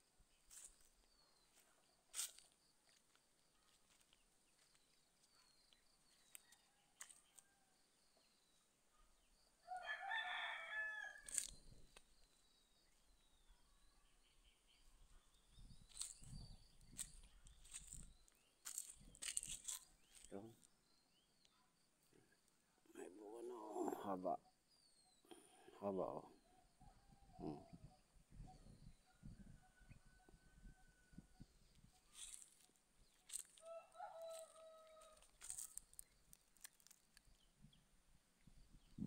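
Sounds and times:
rooster crowing: 9.7s - 11.5s, 33.6s - 35.7s
faint high chirping: 11.3s - 20.6s.

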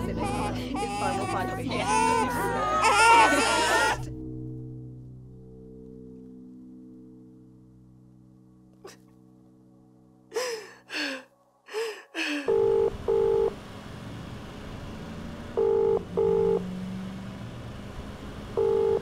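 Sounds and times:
woman sobbing: 0.0s - 4.1s, 10.3s - 12.6s
low background rumble: 0.0s - 8.7s
telephone ringing tone: 12.5s - 13.6s, 15.6s - 16.6s, 18.6s - 19.0s.

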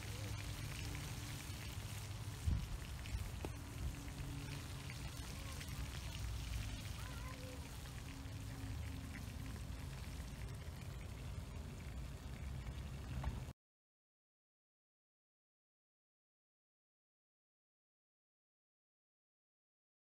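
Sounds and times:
fire pops and crackles: 0.0s - 7.3s.

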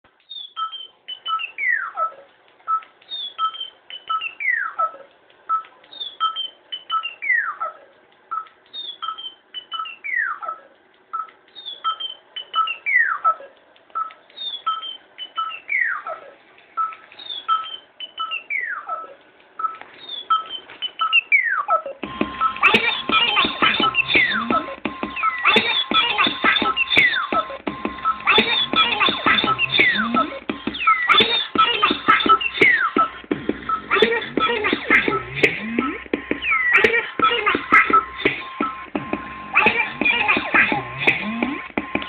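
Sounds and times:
short electronic beeps: 11.2s - 13.4s
sampler pads played: 22.0s - 42.0s
electronic chirp and falling sweep: 35.0s - 36.8s.

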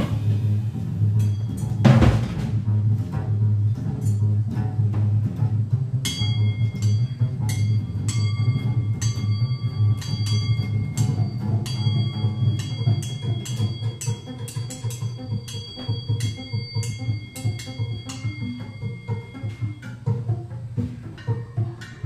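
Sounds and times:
drum and cymbal strikes: 0.0s - 2.8s, 6.0s - 22.0s
jazz trio playing: 0.0s - 22.0s
low bass line: 0.0s - 22.0s
high ringing tones: 1.2s - 2.0s, 6.0s - 20.4s.

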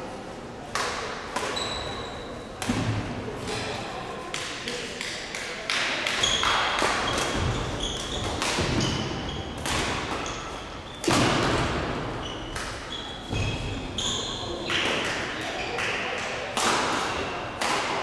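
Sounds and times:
rackets hitting shuttlecock: 0.7s - 1.9s, 2.6s - 3.7s, 4.3s - 13.8s, 14.6s - 18.0s
shoes squeaking on court floor: 1.4s - 2.6s, 6.2s - 15.8s.

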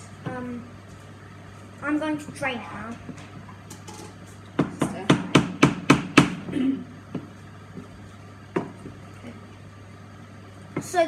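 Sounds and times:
wooden spoon knocking on saucepan: 8.5s - 9.0s.

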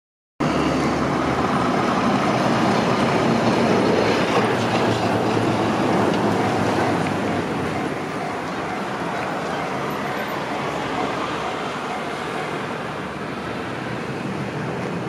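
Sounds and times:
train wheels on rails: 0.8s - 15.0s.

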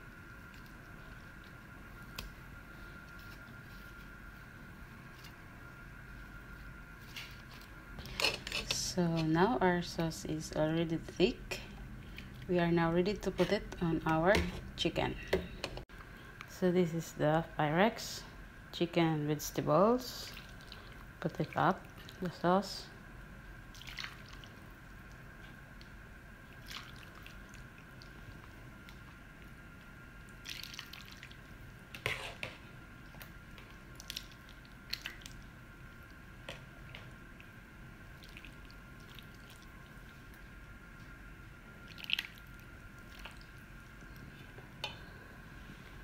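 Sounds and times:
faint steady hum: 0.0s - 46.0s
soft wet sauce plops: 41.8s - 45.0s.

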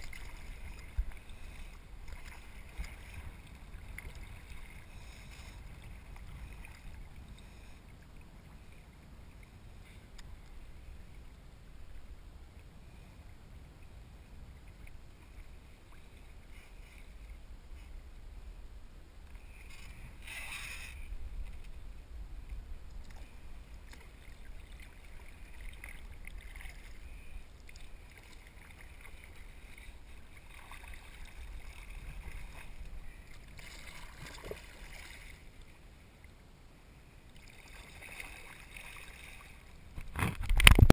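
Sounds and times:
paddle strokes splashing water: 0.0s - 7.8s, 22.5s - 35.8s, 37.3s - 40.8s
steady low rumble: 0.0s - 37.2s.

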